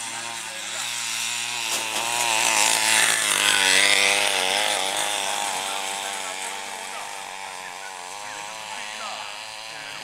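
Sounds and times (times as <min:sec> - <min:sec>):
mechanical lure motor buzzing: 0:00.0 - 0:10.0.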